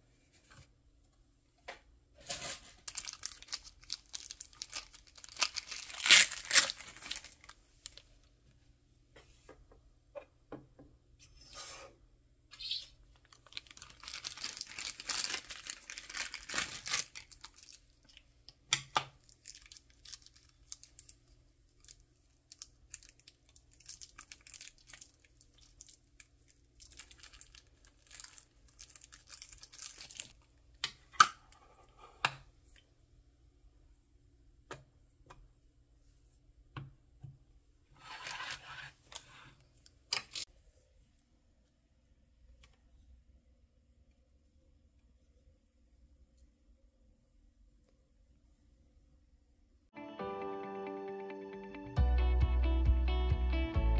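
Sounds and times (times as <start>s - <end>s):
crinkly rustling handling noise: 2.2s - 8.3s, 13.1s - 18.3s, 19.2s - 30.5s.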